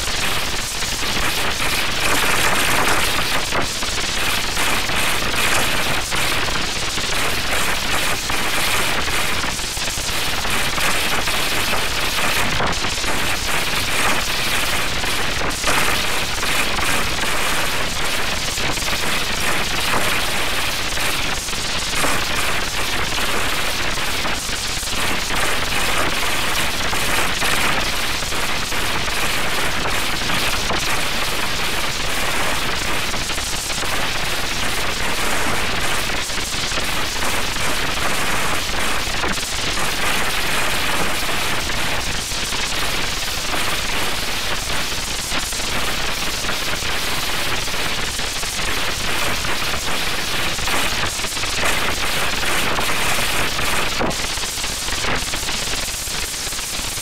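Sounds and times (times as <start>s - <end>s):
harsh distorted crackling noise: 0.0s - 57.0s.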